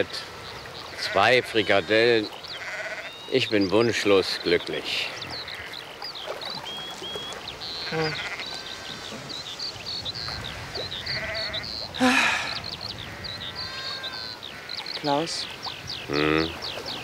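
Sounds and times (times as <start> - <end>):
sheep bleating: 2.6 - 3.2, 7.8 - 8.8, 11.0 - 11.7, 13.1 - 14.7.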